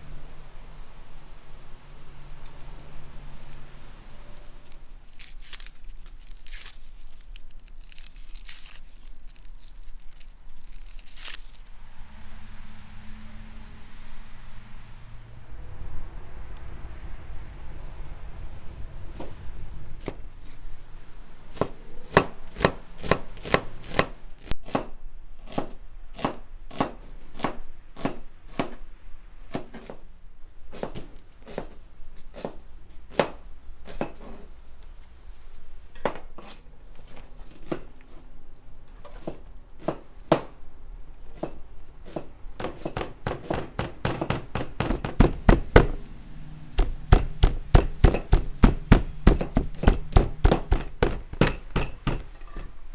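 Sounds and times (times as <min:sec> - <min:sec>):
knife chopping meat on wooden board: 0:46.8 - 0:52.2.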